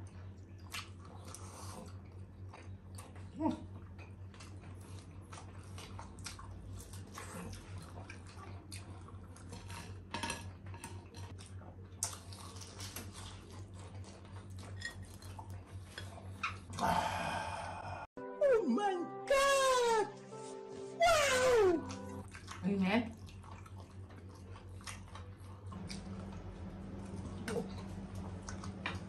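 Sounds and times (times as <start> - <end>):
chewing: 0.0 - 17.0, 21.8 - 29.0.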